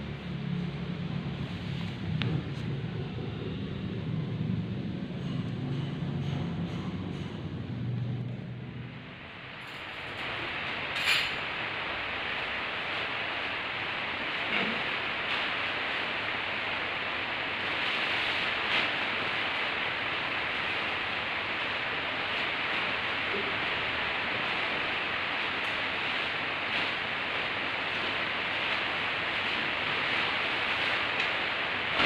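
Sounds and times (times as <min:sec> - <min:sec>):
steady hiss: 0:09.0 - 0:32.0
tent fabric rustling: 0:12.3 - 0:32.0.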